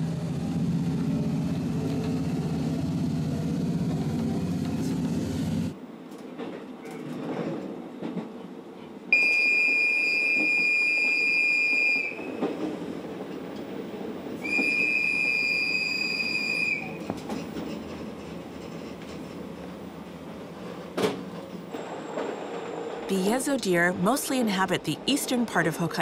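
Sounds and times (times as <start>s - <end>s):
diesel railcar rumble: 0.0s - 26.0s
train whistle blasts: 9.2s - 12.3s, 14.4s - 17.0s.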